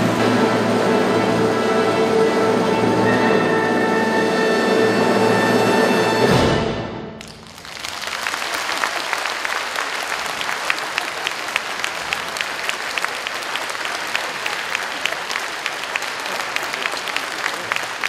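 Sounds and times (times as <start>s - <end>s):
audience applauding: 7.2s - 18.0s.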